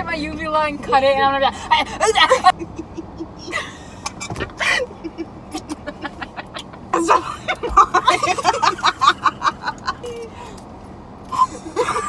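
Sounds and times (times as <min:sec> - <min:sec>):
young women laughing: 0:01.7 - 0:10.4, 0:11.3 - 0:12.0.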